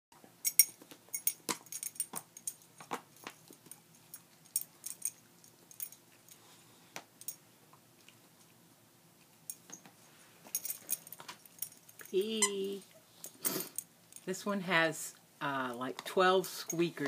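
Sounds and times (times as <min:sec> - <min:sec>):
metallic jingles: 0:00.4 - 0:02.7, 0:03.7 - 0:06.0, 0:10.5 - 0:12.7.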